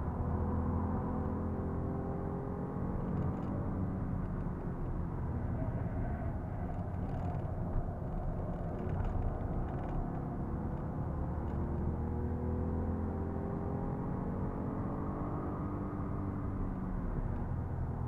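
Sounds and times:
tyre and road noise: 0:02.9 - 0:12.6.

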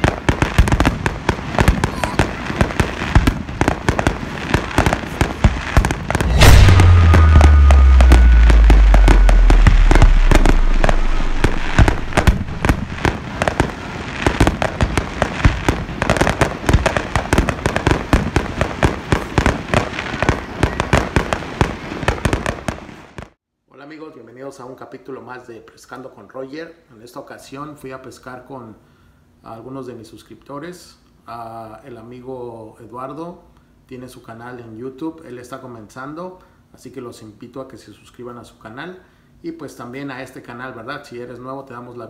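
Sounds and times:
fireworks crackling: 0:00.0 - 0:23.3
big firework boom: 0:05.2 - 0:13.7.

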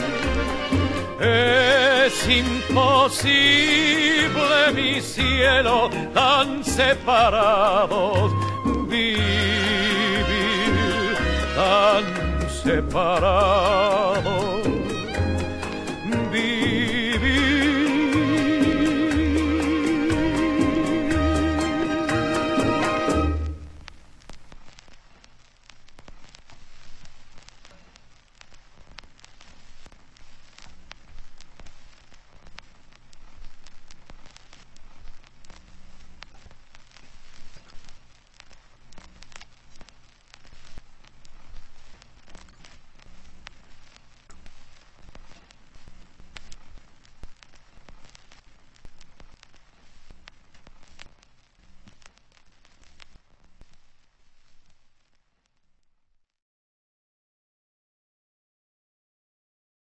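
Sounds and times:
crackling hiss: 0:00.0 - 0:56.4
clicks and pops: 0:23.6 - 0:53.8.

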